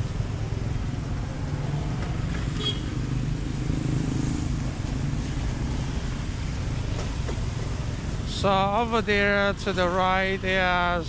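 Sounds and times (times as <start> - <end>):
traffic on wet street: 0.0 - 11.0.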